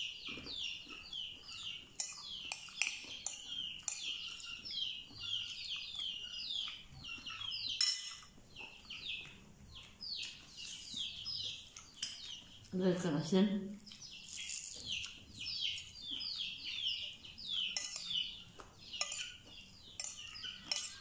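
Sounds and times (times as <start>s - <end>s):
birds chirping: 0.0s - 21.0s
metal spoon clinking on ceramic plate: 2.0s - 4.1s, 7.8s - 8.3s, 17.8s - 18.2s, 19.0s - 19.4s, 20.0s - 21.0s.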